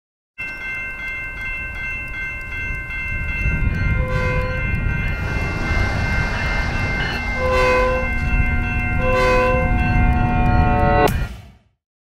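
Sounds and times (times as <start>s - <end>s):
railroad crossing bells ringing: 0.4s - 11.3s
train rumbling: 0.8s - 11.5s
train horn blasts: 4.0s - 11.1s.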